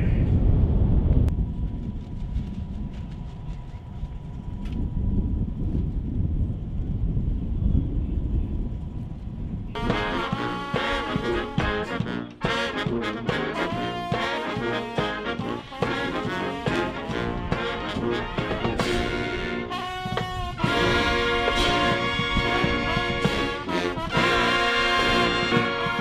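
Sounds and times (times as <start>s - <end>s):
brass band playing: 9.8s - 26.0s
trombone melody: 9.8s - 26.0s.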